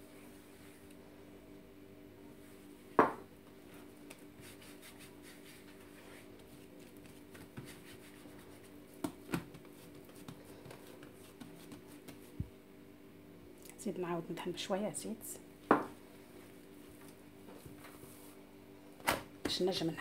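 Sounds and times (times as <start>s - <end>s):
faint steady hum: 0.0s - 20.0s
glass knocking on wooden counter: 3.0s - 3.2s, 15.7s - 15.9s
dough thumping on board: 9.0s - 12.3s.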